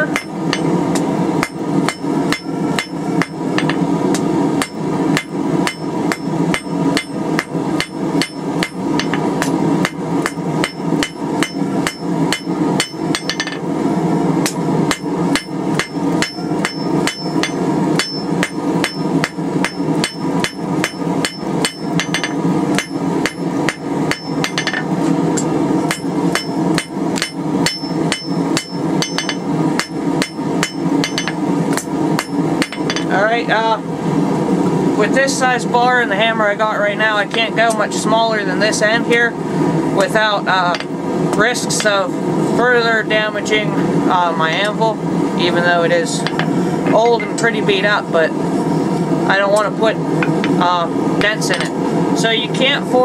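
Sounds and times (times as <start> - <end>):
hammer striking steel on anvil: 0.0 - 13.7, 14.4 - 33.2, 51.2 - 51.8
steady hum: 0.0 - 53.0.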